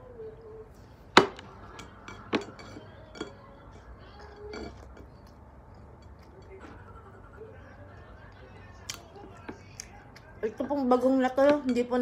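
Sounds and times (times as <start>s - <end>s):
clinks against ceramic plate: 1.2s - 6.7s.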